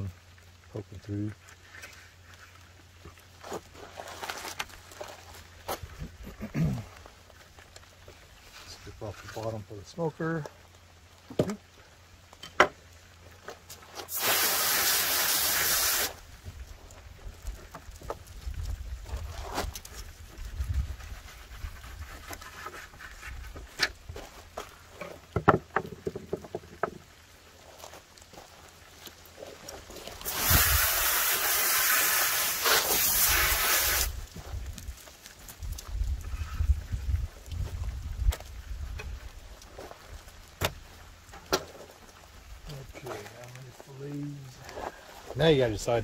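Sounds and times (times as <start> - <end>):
hose nozzle spraying water: 14.0 - 16.2, 30.1 - 34.2.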